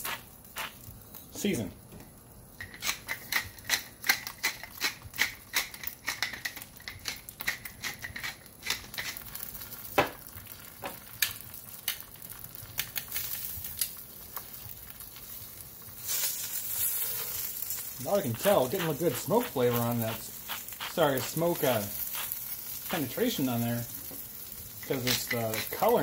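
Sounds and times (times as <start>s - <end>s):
hiss: 18.0s - 23.0s.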